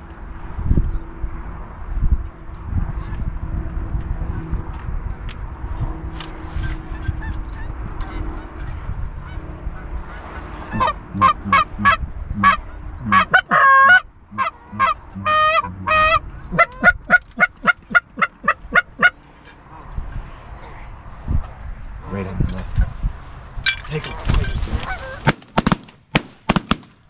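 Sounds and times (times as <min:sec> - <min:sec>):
goose call honks and clucks: 0:06.5 - 0:19.6, 0:23.9 - 0:25.4.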